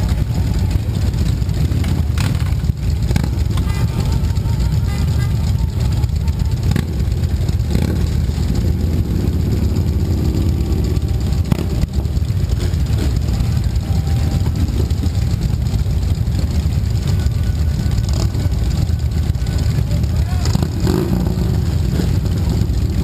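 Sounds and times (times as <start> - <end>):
motorcycles idling: 0.0 - 23.0.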